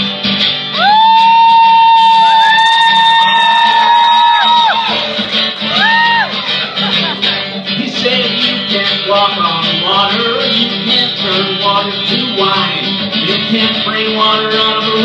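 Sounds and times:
acoustic guitar strummed and picked: 0:00.0 - 0:15.0
man singing: 0:07.3 - 0:15.0.

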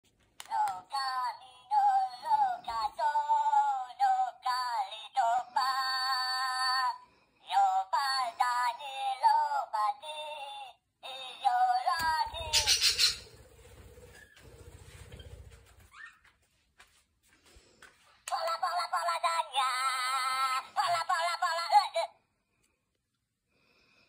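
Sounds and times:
toy playing high-pitched sung tune: 0:00.5 - 0:12.6.

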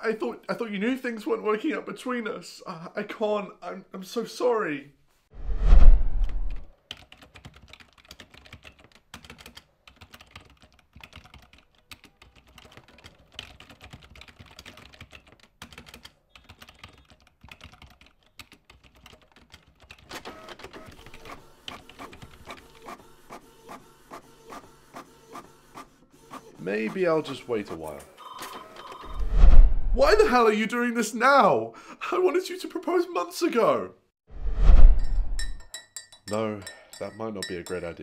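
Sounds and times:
laptop keyboard typing: 0:06.8 - 0:23.0.

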